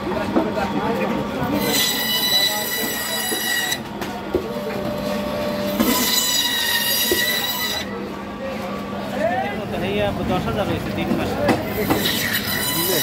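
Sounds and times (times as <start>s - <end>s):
band saw humming: 1.3s - 8.2s
saw blade whining through fish: 1.6s - 3.8s, 5.6s - 7.9s, 11.8s - 13.0s.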